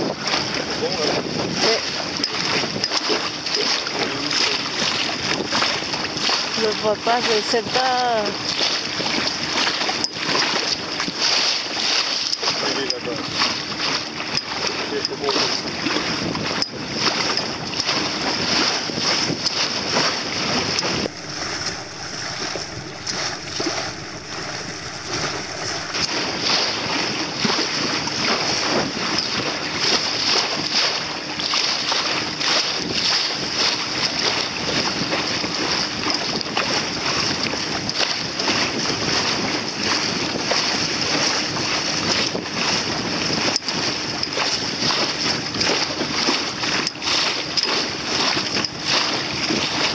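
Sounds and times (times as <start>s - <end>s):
sea water rushing against hull: 0.0s - 49.9s
wind buffeting microphone: 15.6s - 31.5s.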